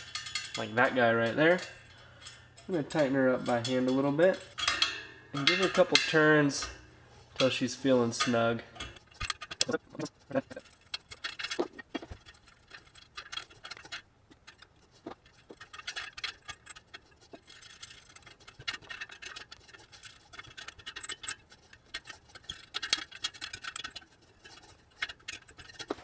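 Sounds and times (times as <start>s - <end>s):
spokes ticking and clicking: 0.0s - 26.0s
light scratching: 5.4s - 26.0s.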